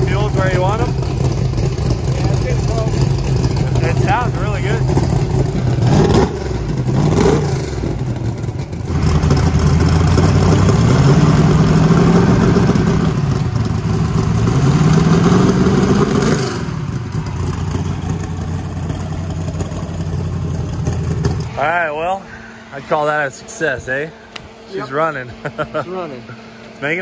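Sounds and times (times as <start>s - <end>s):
vee eight engine revving: 0.0s - 21.8s.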